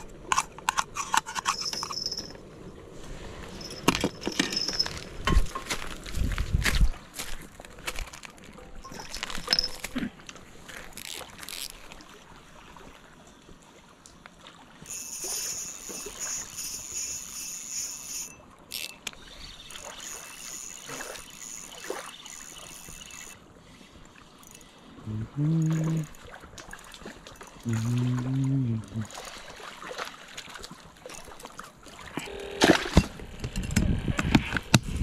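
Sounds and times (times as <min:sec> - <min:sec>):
handling knocks and clicks: 0:03.6 - 0:06.8
spinning reel whirring: 0:14.8 - 0:23.4.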